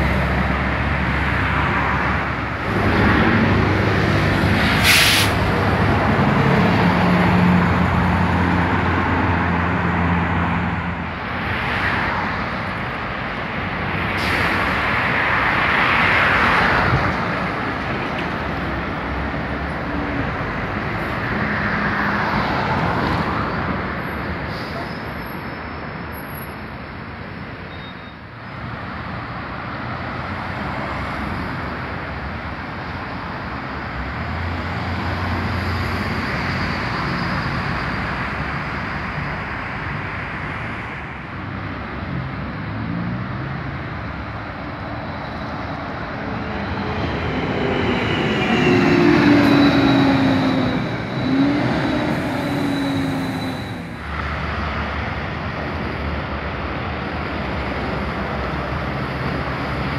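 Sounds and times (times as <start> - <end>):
bus engine low drone: 0.0 - 59.9
heavy road traffic passing: 0.0 - 59.9
air brake hiss: 4.7 - 5.5, 14.2 - 14.7.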